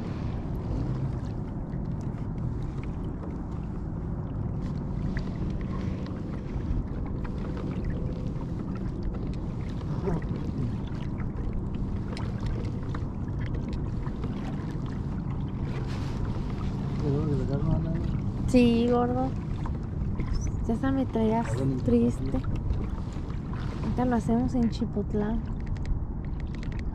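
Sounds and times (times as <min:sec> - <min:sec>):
water rushing along hull: 0:00.0 - 0:26.9
small ticks and splashes: 0:01.1 - 0:26.9.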